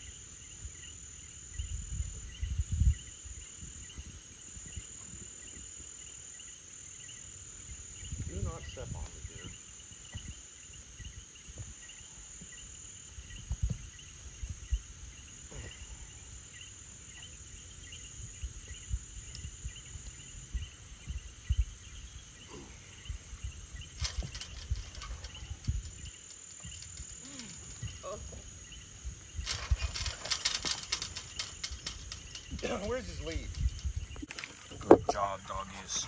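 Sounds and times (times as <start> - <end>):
insect high trill: 0.0 - 36.0
rustling and clattering: 23.8 - 28.0, 29.3 - 35.2
low thumps and scuffling: 23.8 - 28.4, 29.2 - 35.2.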